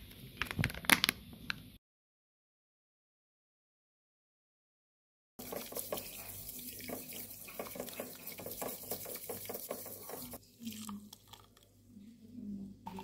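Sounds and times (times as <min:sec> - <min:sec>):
whisk scratching in tea: 0:05.4 - 0:10.4
water pouring into bowl: 0:05.4 - 0:11.6.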